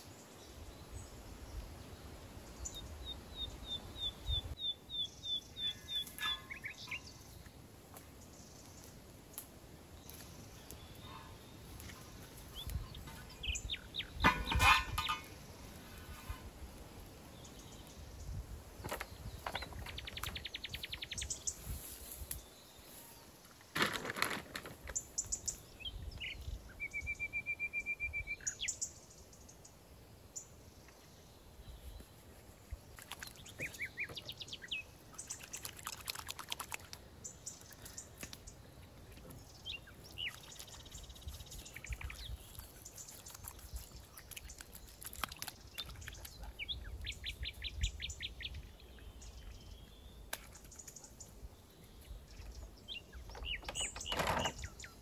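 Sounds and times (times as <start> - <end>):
small birds trilling and chirping: 0.0 - 23.7, 24.4 - 55.0
clicks and crackles: 23.7 - 25.1.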